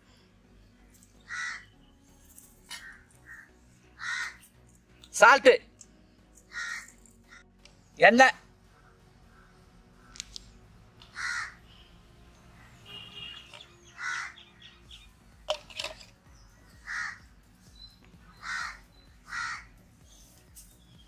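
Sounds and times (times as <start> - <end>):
crow cawing: 1.2 - 1.7, 2.7 - 4.5, 6.5 - 7.4, 8.7 - 10.3, 11.0 - 11.7, 12.7 - 14.4, 16.8 - 17.2, 18.3 - 19.7.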